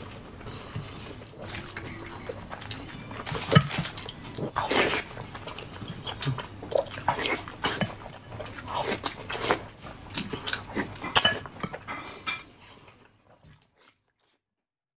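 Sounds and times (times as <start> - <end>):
chewing with wet smacks: 0.3 - 12.0, 12.8 - 14.4.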